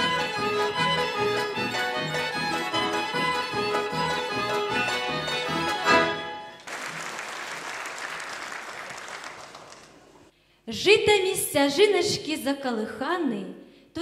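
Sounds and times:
folk ensemble playing: 0.0 - 6.6
audience applause: 6.5 - 10.2.

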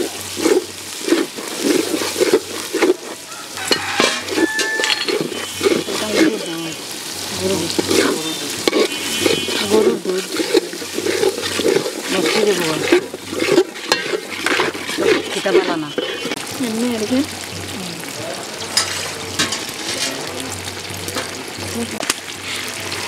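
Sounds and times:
metal spatula scraping a pot: 0.0 - 6.8, 7.4 - 16.4, 18.6 - 20.4
spices sizzling: 0.0 - 23.0.

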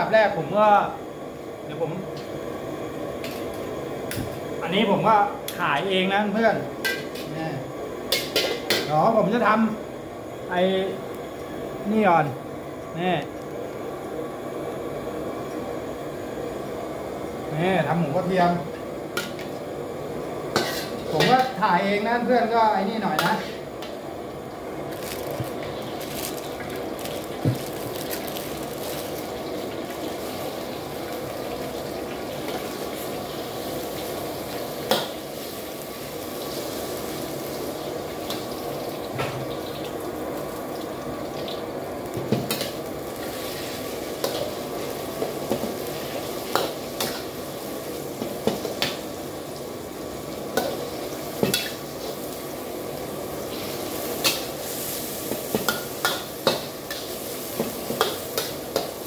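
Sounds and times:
pork sizzling in a wok: 0.0 - 59.0
metal ladle scraping wok: 20.5 - 21.4.

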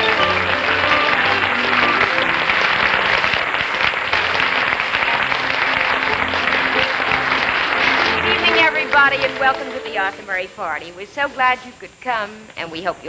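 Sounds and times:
audience applauding: 0.0 - 10.8
dance band playing: 0.0 - 10.9.

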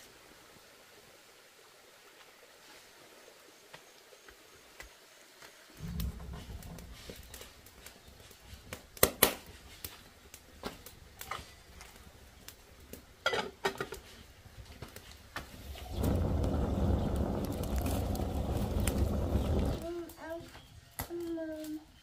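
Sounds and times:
steady low rumble: 15.6 - 19.9.

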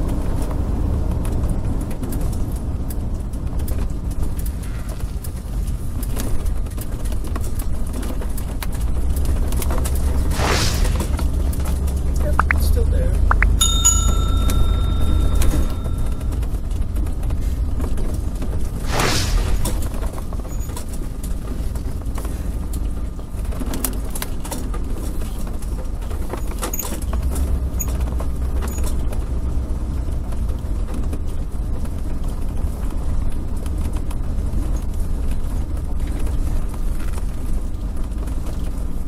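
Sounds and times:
engine and road rumble: 0.0 - 39.0
sharp clicks and rattles: 11.0 - 18.8, 19.5 - 37.3.

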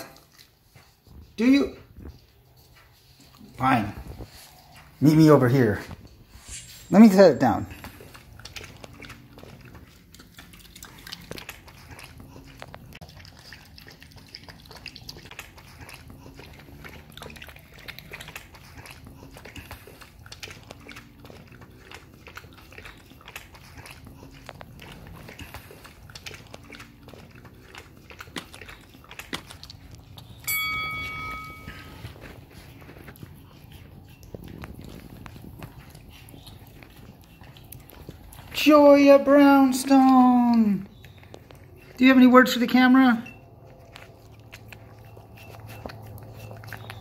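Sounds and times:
dogs lapping broth: 0.0 - 47.0
bright ringing tone: 30.4 - 32.1.

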